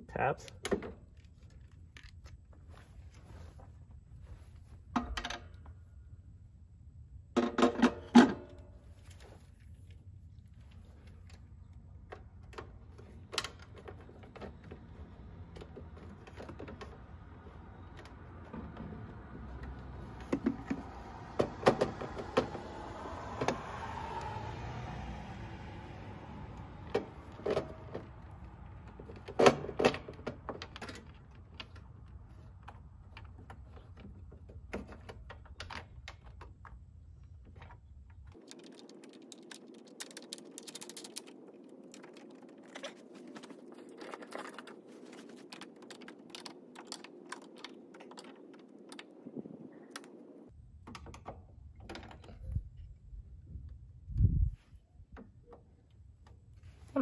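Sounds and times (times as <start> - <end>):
wire rustling: 37.2 - 50.5.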